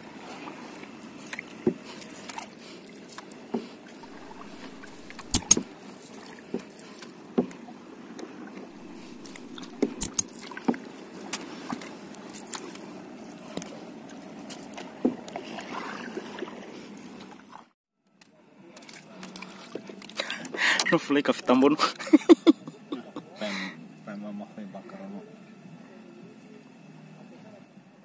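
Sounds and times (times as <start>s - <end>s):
paddle swishing water: 0.0s - 17.7s.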